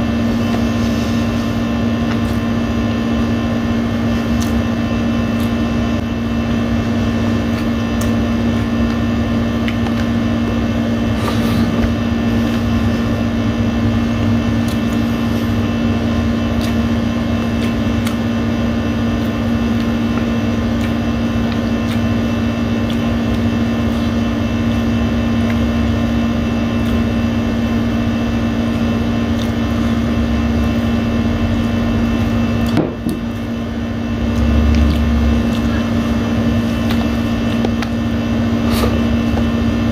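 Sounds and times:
air conditioner humming: 0.0 - 39.9
chewing clicks: 4.3 - 4.6, 14.6 - 15.0, 16.5 - 18.2, 19.2 - 23.6, 29.3 - 29.8, 34.3 - 36.0.

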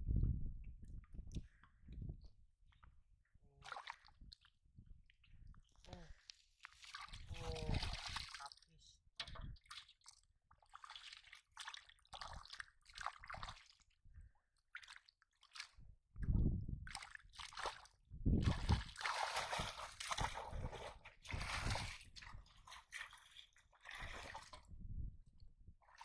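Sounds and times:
muddy water sloshing and splashing: 3.6 - 4.6, 6.0 - 14.0, 14.7 - 15.8, 16.8 - 24.8
hands squelching in wet mud: 6.1 - 8.7, 16.9 - 24.6.

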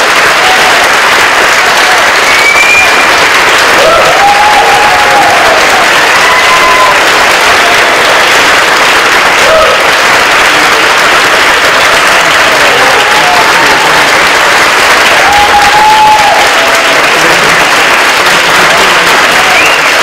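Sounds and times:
audience applauding: 0.0 - 20.0.

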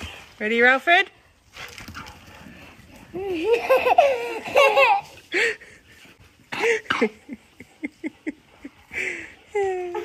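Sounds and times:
person laughing: 3.2 - 5.8.

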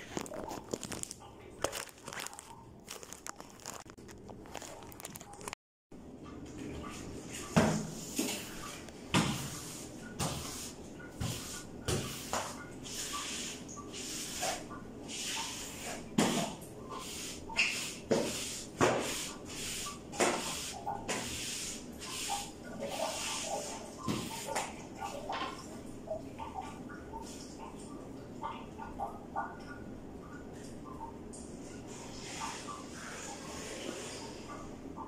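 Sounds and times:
cleaning pole swishing on tiles: 6.6 - 25.6.

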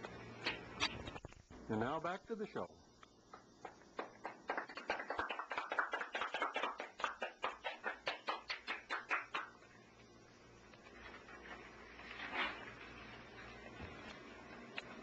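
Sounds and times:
people clapping: 3.4 - 9.6.

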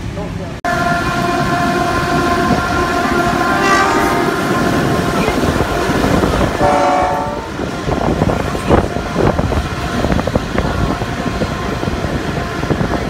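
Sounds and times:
engines and wheels rumbling: 0.0 - 13.0
diesel locomotive horn chord: 0.6 - 7.7
low horn blast: 0.6 - 8.0.

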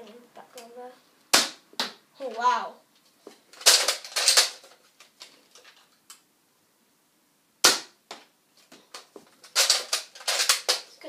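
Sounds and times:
plastic clacks of toy blaster: 9.5 - 10.9.

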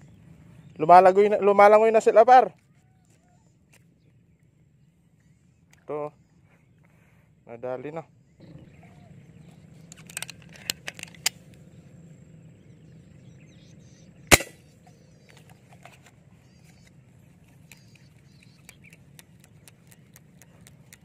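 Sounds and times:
handling clicks: 9.8 - 11.6
rubber-band gun firing snap: 14.3 - 14.6.

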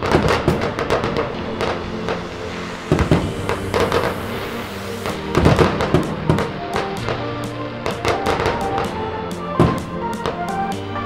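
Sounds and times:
low rumble: 0.0 - 7.8
fireworks bangs and crackles: 0.0 - 10.8.

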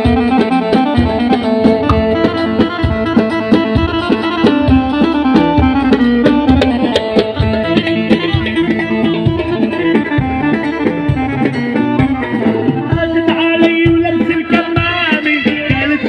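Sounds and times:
plucked-string melody: 0.0 - 16.0
steady drum beat: 0.0 - 16.0.

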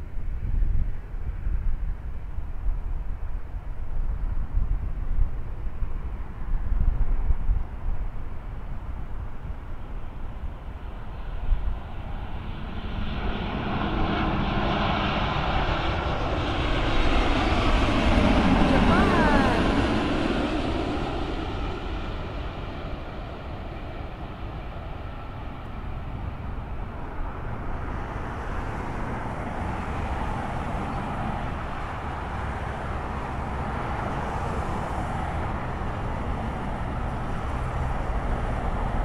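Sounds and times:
jet engines roaring: 9.6 - 39.0
airliner touchdown rumble: 11.7 - 39.0.

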